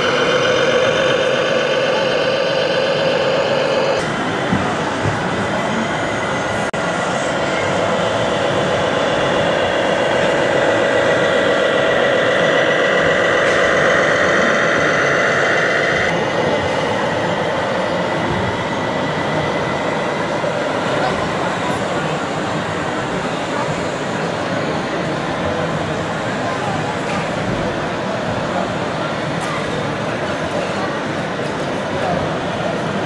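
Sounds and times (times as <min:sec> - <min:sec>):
whining tone: 0:00.0 - 0:22.2
electronic diesel engine sound: 0:00.0 - 0:33.0.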